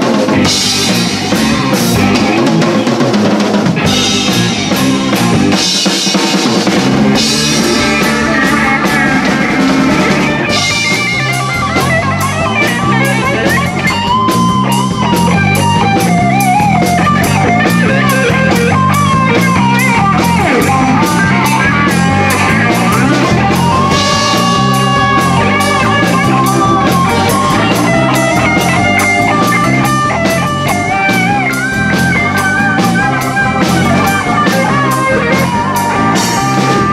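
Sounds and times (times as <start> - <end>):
lead guitar bent notes: 0.0 - 36.9
rock band playing loud: 0.0 - 36.9.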